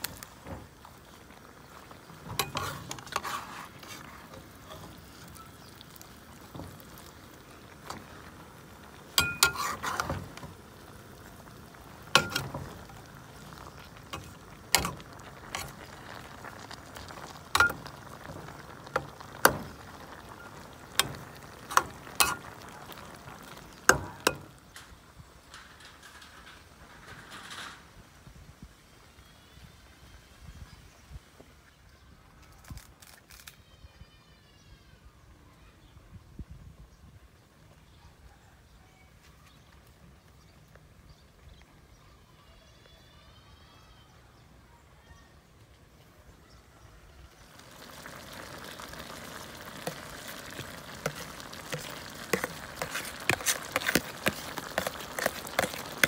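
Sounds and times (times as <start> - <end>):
food sizzling in a wok: 0.0 - 25.3, 47.2 - 56.0
spatula scraping a wok: 2.2 - 5.3, 9.2 - 10.5, 14.1 - 23.0, 49.7 - 56.0.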